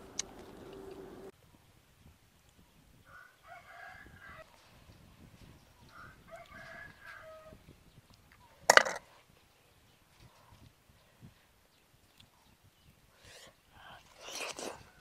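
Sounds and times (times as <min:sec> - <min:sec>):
rooster crowing: 0:03.1 - 0:04.4, 0:05.9 - 0:07.6.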